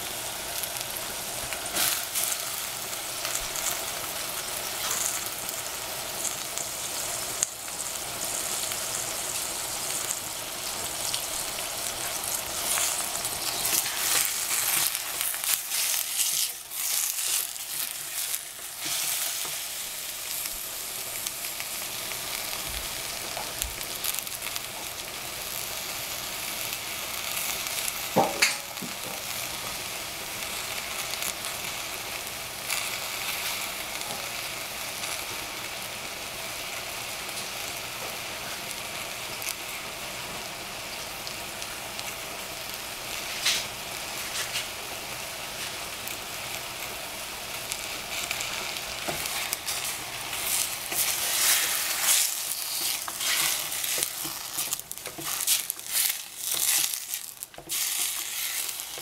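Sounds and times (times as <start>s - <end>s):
vegetables sizzling in a saucepan: 0.0s - 59.0s
wooden spatula scraping: 12.1s - 19.8s, 49.0s - 59.0s.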